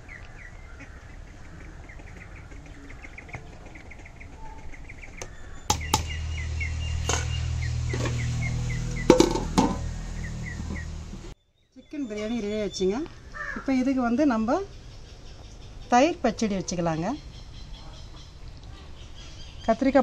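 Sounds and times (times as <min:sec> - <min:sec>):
small bird chirping: 0:00.0 - 0:20.0
low steady rumble: 0:05.3 - 0:11.4.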